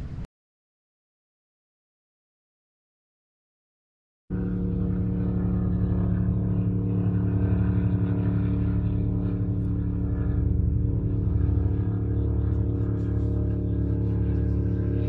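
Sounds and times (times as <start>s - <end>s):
car engine droning: 4.3s - 15.0s.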